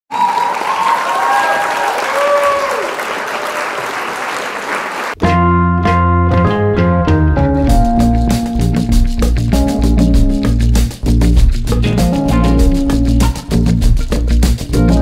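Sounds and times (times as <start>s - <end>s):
crowd clapping and cheering: 0.1s - 5.2s
instrumental music with ringing notes: 5.2s - 15.0s.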